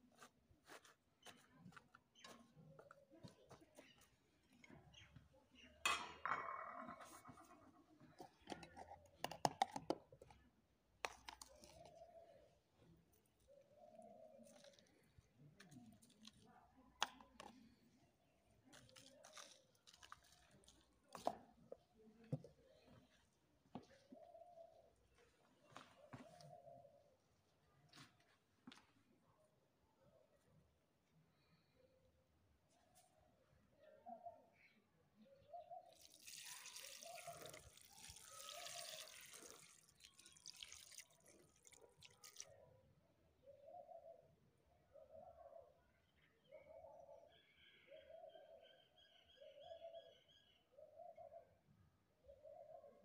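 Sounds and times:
water pouring into metal pot: 35.9 - 42.5.

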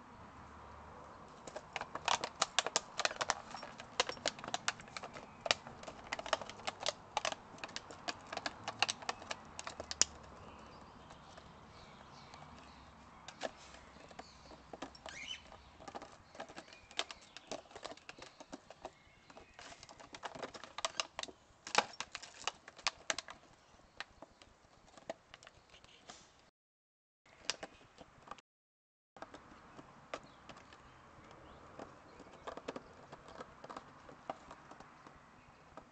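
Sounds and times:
plastic bottle crackling: 1.3 - 25.7.

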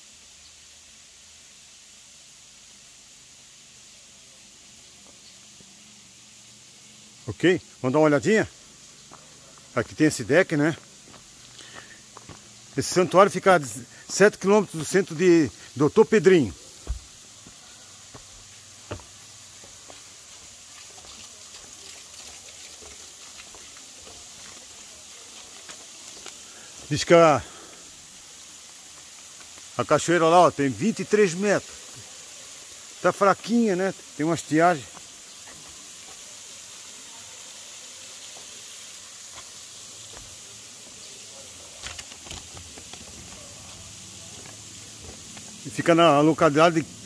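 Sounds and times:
waterfall hiss: 0.0 - 47.0
footsteps on wooden boardwalk: 11.0 - 12.5, 16.8 - 20.5, 41.9 - 45.6.

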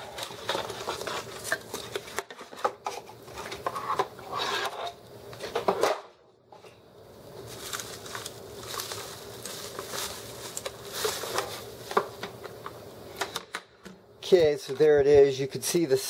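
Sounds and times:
bubble wrap crinkling: 7.4 - 12.4.

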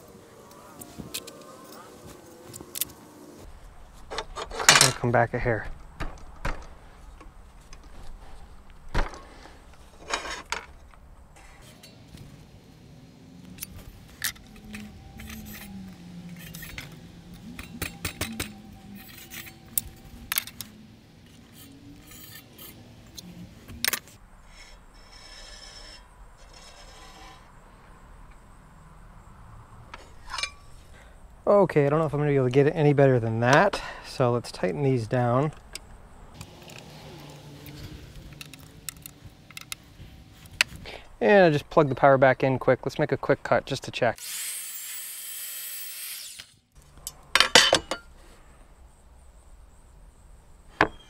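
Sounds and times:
metal scraping: 0.0 - 12.7, 13.5 - 28.0, 29.9 - 31.0
metallic clicks: 35.5 - 40.7.

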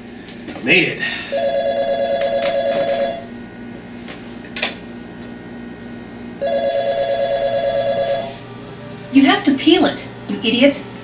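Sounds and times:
telephone bell ringing: 1.3 - 3.3, 6.4 - 8.4.

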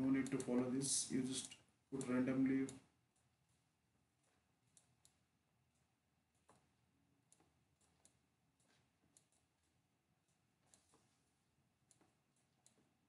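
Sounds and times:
faint computer mouse clicks: 0.0 - 3.6, 4.2 - 11.1.

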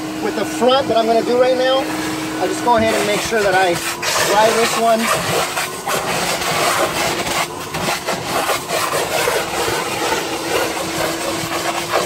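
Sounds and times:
shop vac motor humming: 0.0 - 12.0.

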